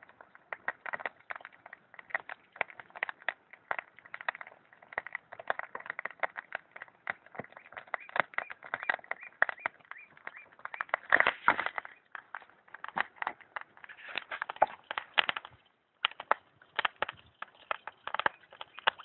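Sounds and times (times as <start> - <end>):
pop-pop engine crackling: 0.0 - 19.0.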